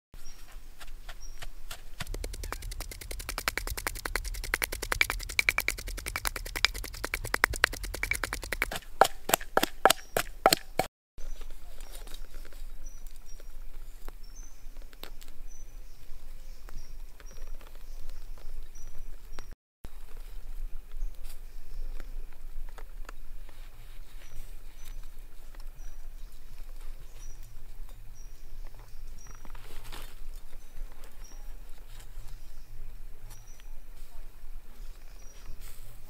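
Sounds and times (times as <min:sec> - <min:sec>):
pestle pounding in wooden mortar: 0:01.7 - 0:10.9
high bird chirps: 0:02.0 - 0:08.8.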